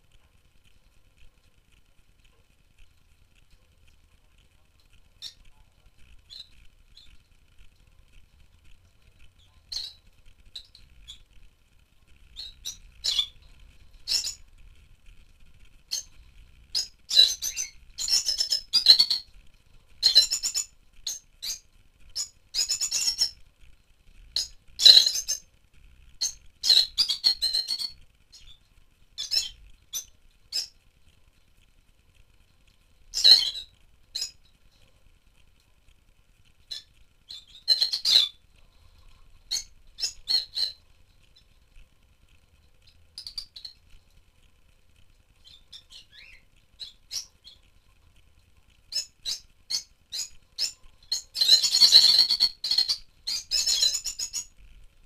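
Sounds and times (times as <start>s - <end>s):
lovebirds chirping and squawking: 6.2s - 7.2s, 9.4s - 11.4s, 12.3s - 14.5s, 15.9s - 19.3s, 20.0s - 23.4s, 24.3s - 25.4s, 26.2s - 30.8s, 33.1s - 34.4s, 36.6s - 41.5s, 42.8s - 43.8s, 45.4s - 47.7s, 48.9s - 54.5s.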